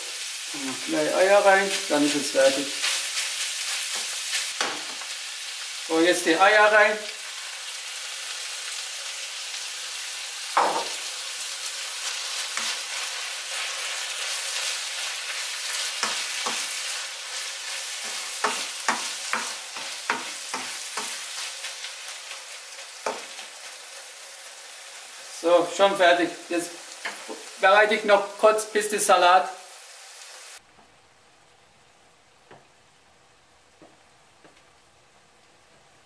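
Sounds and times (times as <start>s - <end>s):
food sizzling in a frying pan: 0.0s - 30.6s.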